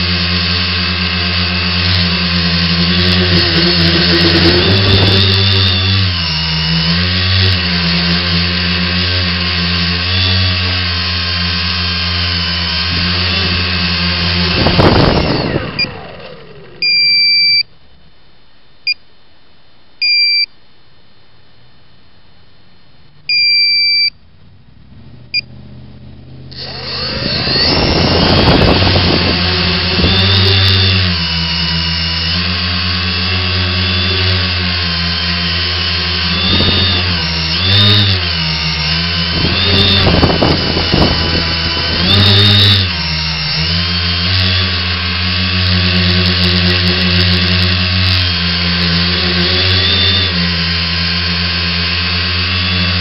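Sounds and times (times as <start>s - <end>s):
drone motors and propellers running: 0.0s - 17.7s, 23.5s - 53.0s
long electronic beeps: 16.8s - 17.7s, 20.0s - 20.5s, 23.3s - 24.2s.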